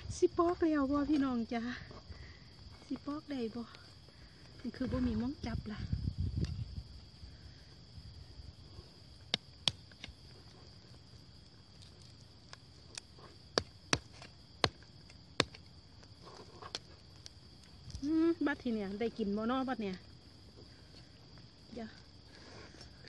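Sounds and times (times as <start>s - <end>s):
insects chirring: 0.0s - 23.0s
knife cracking durian husk: 9.3s - 10.3s.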